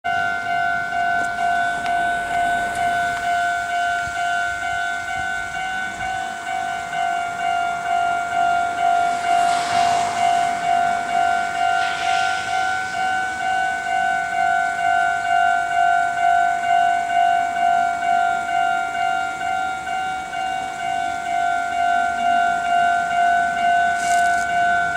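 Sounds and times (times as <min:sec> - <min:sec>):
level crossing warning bell: 0:00.0 - 0:24.9
faint rushing sounds: 0:07.3 - 0:15.4.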